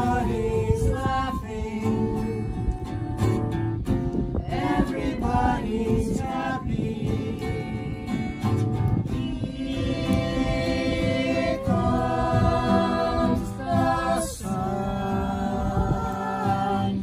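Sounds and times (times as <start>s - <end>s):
group singing: 0.0s - 3.6s, 4.2s - 17.0s
acoustic guitar strummed: 6.2s - 17.0s.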